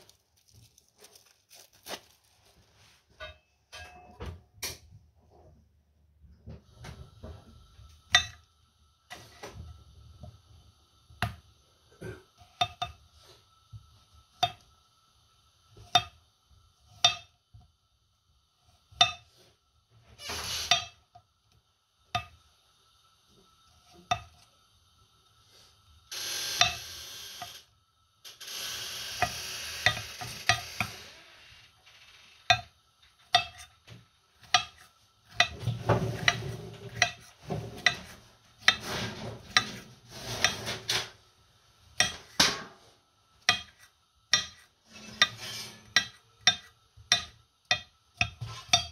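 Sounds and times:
knife scraping slices: 43.5 - 46.7.

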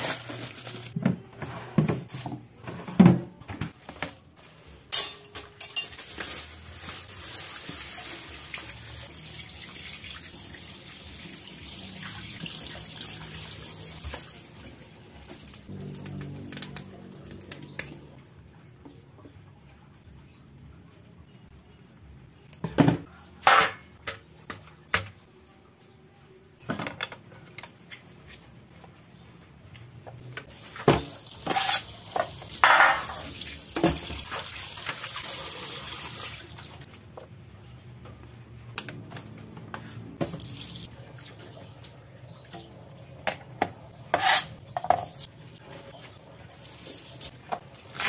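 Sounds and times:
utensils clattering in metal sink: 4.9 - 7.0, 30.7 - 35.0.

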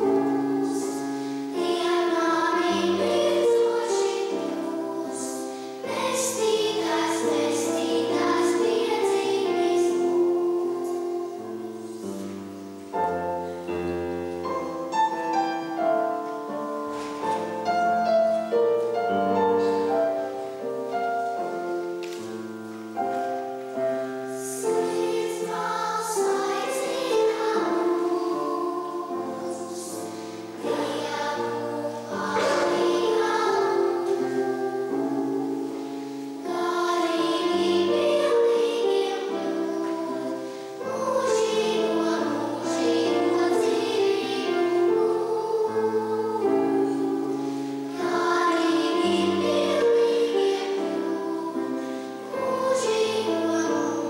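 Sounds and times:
children's choir singing: 0.0 - 54.0.

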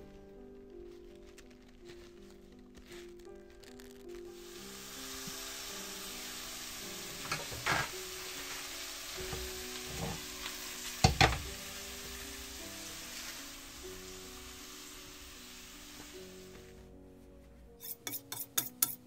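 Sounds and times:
steak sizzling in a pan: 2.6 - 16.8.

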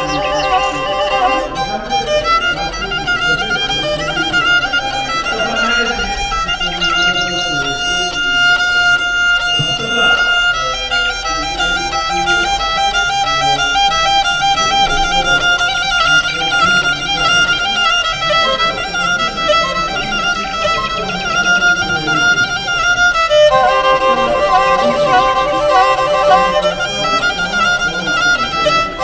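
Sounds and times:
instrumental background music: 0.0 - 3.7, 19.4 - 29.0.

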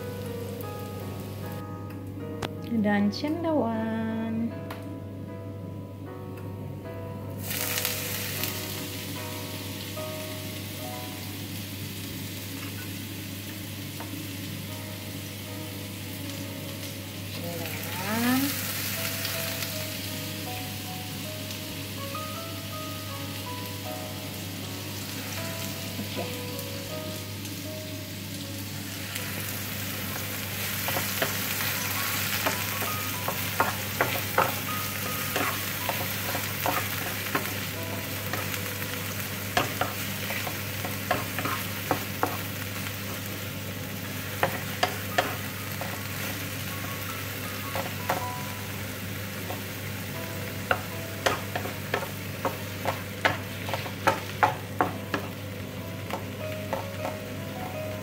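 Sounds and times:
mushrooms sizzling in hot oil: 0.0 - 1.6, 7.4 - 58.0
wooden spatula knocking pan: 33.2 - 34.7, 50.7 - 55.4.

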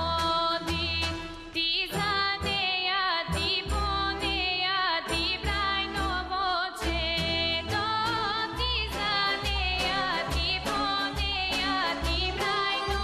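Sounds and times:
woman singing folk song: 0.0 - 13.0
instrumental accompaniment with beat: 6.8 - 13.0.

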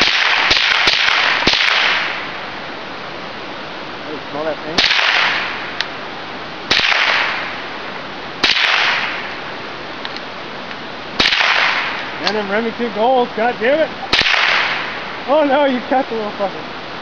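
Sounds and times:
rifle shots with long echo: 0.0 - 2.6, 4.7 - 5.9, 6.6 - 9.6, 11.2 - 12.4, 14.0 - 15.4.

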